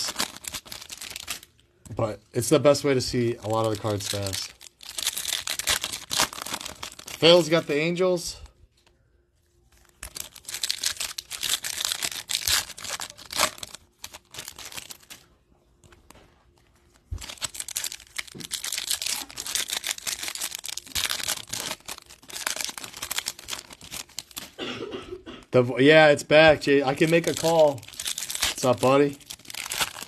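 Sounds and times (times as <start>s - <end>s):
foil wrappers crinkling and tearing: 0.0s - 24.6s, 26.6s - 30.0s.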